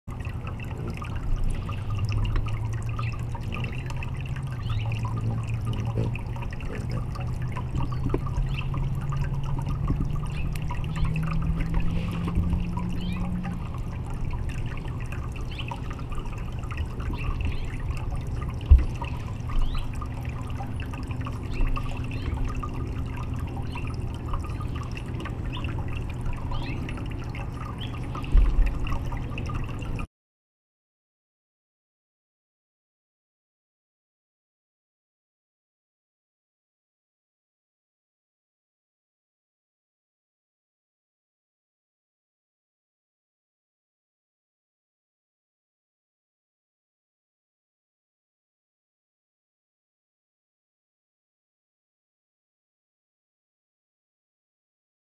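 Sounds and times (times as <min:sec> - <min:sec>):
fountain trickling into basin: 0:00.1 - 0:30.1
low steady hum: 0:00.1 - 0:30.1.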